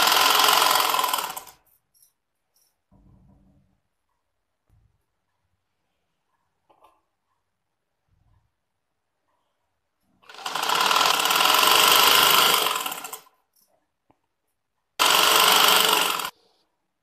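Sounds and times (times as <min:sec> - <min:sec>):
sewing machine stitching: 0:00.0 - 0:01.7, 0:10.2 - 0:13.5, 0:15.0 - 0:16.4.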